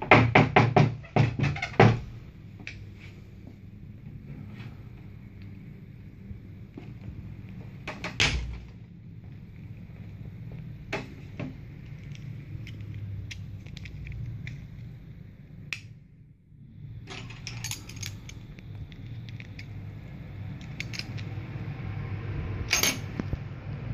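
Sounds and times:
steady low hum: 1.0 - 23.9
plastic keychain clicking and rattling: 12.0 - 14.6
metal keys fitted onto ring: 17.1 - 18.5.

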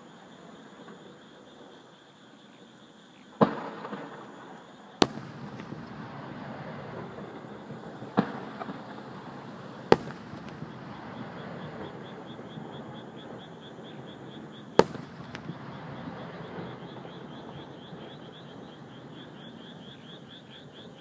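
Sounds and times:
insects chirping: 0.0 - 21.0
firework crackling: 5.0 - 12.6, 14.7 - 17.3
firework booms: 5.0 - 18.1.

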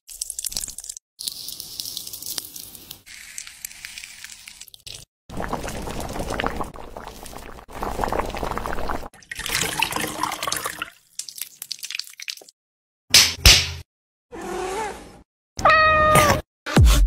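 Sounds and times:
fruit and liquid pouring splashing: 0.1 - 12.6.

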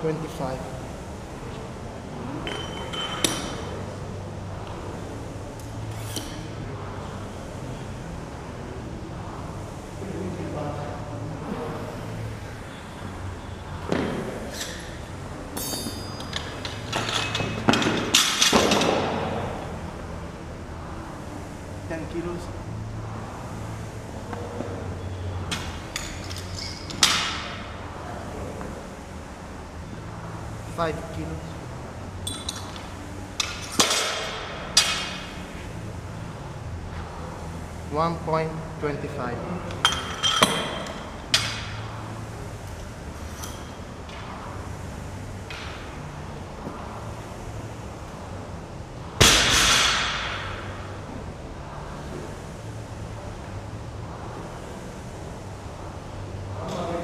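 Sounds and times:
short metallic ring: 15.6 - 16.5
light metallic clinks: 15.6 - 17.6.

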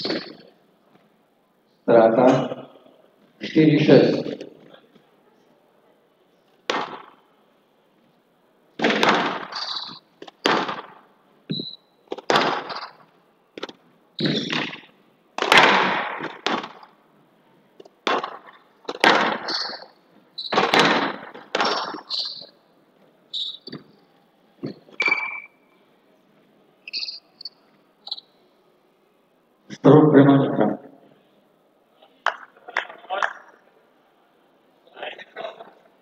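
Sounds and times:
squash ball smacks: 6.6 - 7.2, 8.8 - 11.0, 12.1 - 13.0, 13.6 - 16.9, 17.8 - 19.8, 20.5 - 22.1
short high squeaks: 9.5 - 10.0, 11.5 - 11.9, 14.2 - 14.8, 19.4 - 20.8, 21.6 - 22.5, 23.3 - 23.9, 24.6 - 25.6, 26.8 - 28.3.

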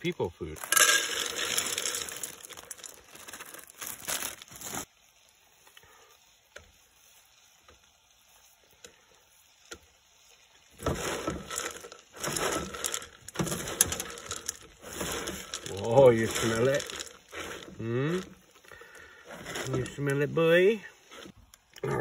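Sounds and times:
hands mixing food rustling: 0.4 - 4.9, 10.8 - 21.7
kibble rattling into metal skillet: 0.6 - 4.6, 10.8 - 18.4, 19.3 - 20.4
plastic bag crinkling: 0.6 - 4.9, 10.8 - 21.7.

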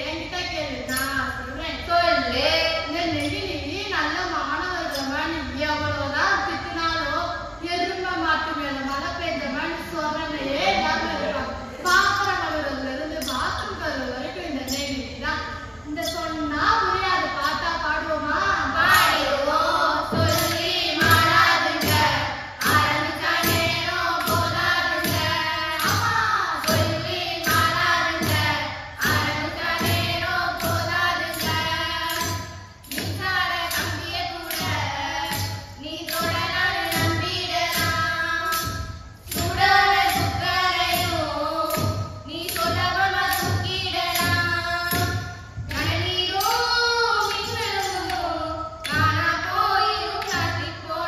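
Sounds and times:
girls singing in chorus: 0.0 - 7.8, 9.9 - 51.0
clay pot and drum beat: 11.8 - 51.0
tambourine and bells jingling: 18.9 - 45.8.

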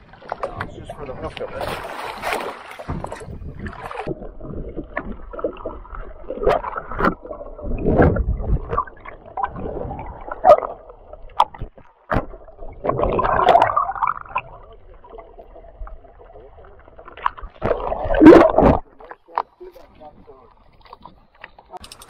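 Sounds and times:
water sloshing and gurgling: 0.0 - 22.0.

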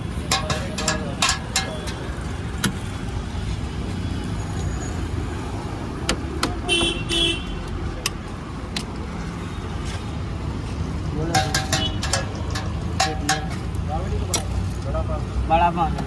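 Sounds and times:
steel utensils clicking on pots: 0.0 - 2.2, 11.3 - 14.5
road traffic rumble: 0.0 - 16.0
vehicle horn toots: 6.7 - 7.6.

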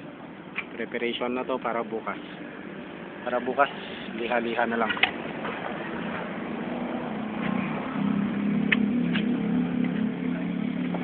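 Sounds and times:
engine humming: 3.7 - 11.0.

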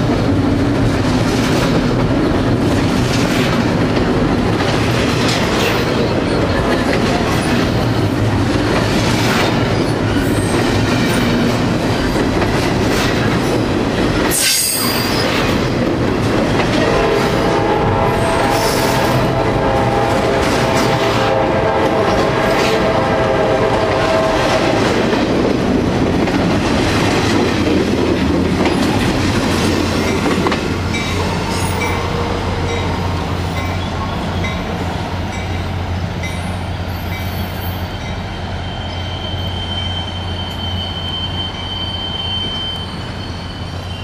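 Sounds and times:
freight train wheels clattering: 0.0 - 38.2.

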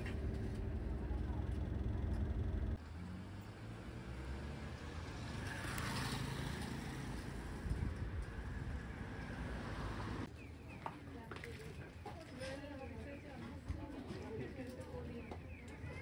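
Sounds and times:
vehicle passing by: 0.0 - 10.3
road traffic noise: 0.0 - 13.7.

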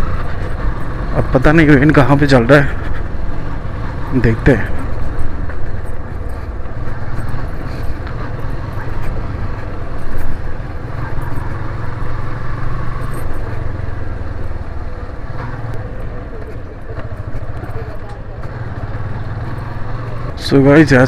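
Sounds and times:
motorcycle engine running: 0.0 - 21.0.

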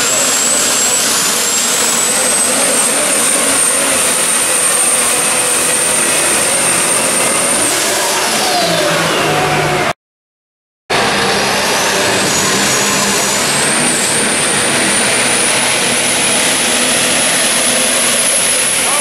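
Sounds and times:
turbocharger whistle: 0.0 - 9.9, 10.9 - 19.0
loud diesel engine: 0.0 - 10.0, 10.9 - 19.0.

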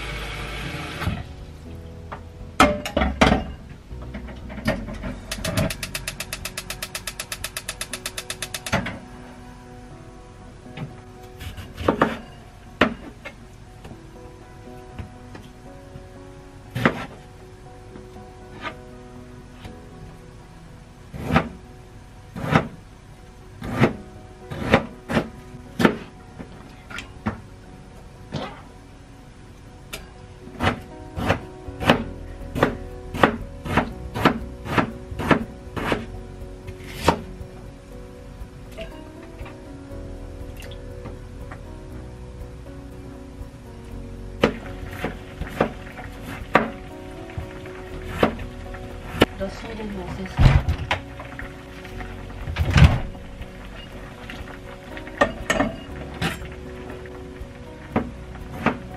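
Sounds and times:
stove igniter clicking rapidly: 5.3 - 8.8.

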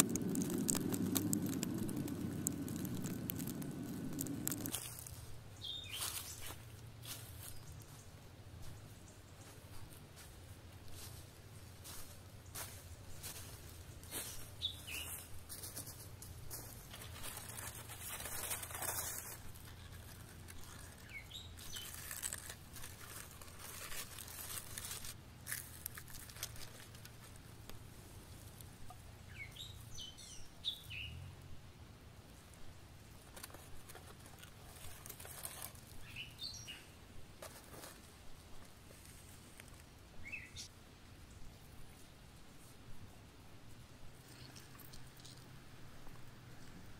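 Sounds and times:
chicken tearing apart: 0.0 - 5.1, 17.1 - 27.1
footsteps on dry leaves: 0.0 - 8.0, 9.6 - 27.5
small birds chirping: 0.0 - 9.7, 12.4 - 15.4, 16.3 - 25.2, 28.4 - 31.3, 33.8 - 37.0, 40.2 - 42.1.

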